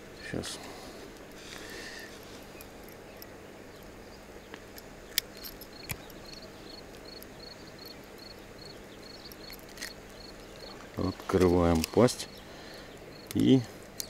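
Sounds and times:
faint outdoor ambience: 0.0s - 14.0s
insect chirping: 1.4s - 14.0s
metal tool clicks: 4.5s - 7.3s.

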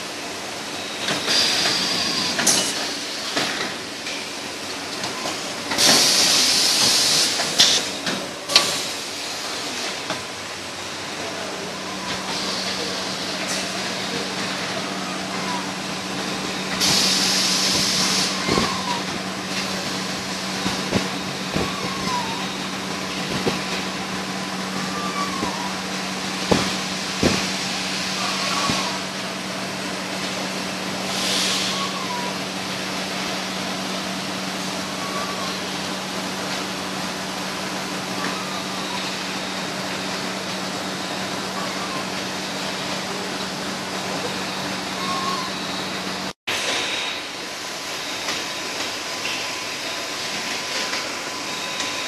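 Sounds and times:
packaging machine humming: 4.7s - 46.3s
hissing bursts: 11.7s - 30.4s.

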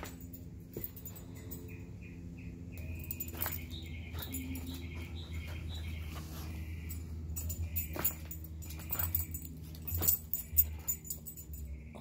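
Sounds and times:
collar and leash jingling: 2.8s - 12.0s.

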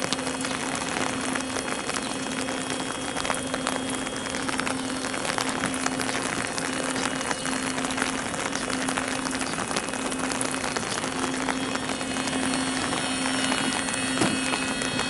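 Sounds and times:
rain pattering: 0.0s - 15.0s
steady low hum: 0.0s - 15.0s.

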